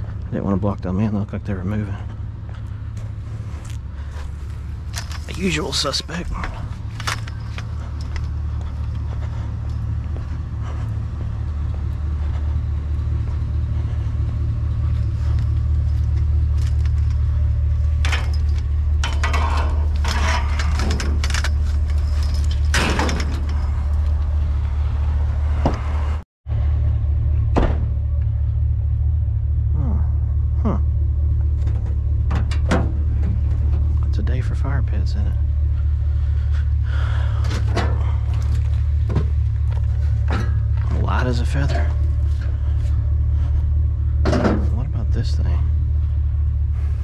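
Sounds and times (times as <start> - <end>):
scrap metal clattering: 18.0 - 23.9.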